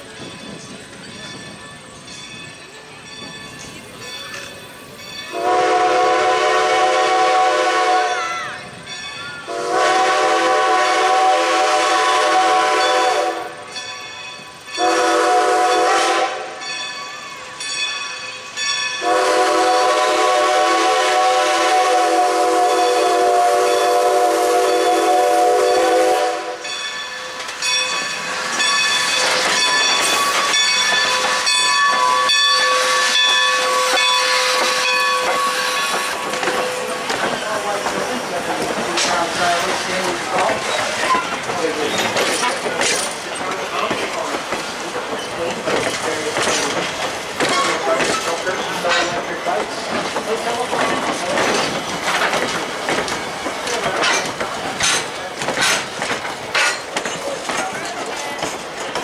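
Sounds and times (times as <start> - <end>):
steam whistle: 5.3 - 8.5, 9.5 - 13.6, 14.8 - 16.6, 19.0 - 26.7
steam hissing: 18.2 - 59.0.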